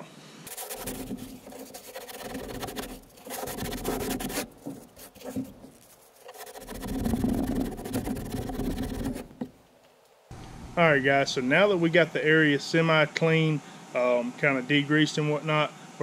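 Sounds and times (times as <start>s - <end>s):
paper towel scrubbing plastic: 0.5s - 9.5s.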